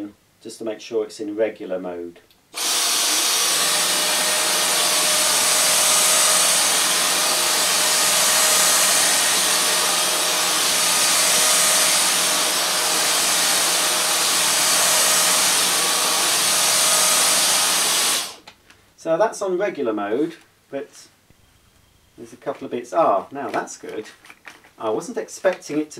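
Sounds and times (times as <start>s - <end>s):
vacuum cleaner whine: 2.6s - 18.4s.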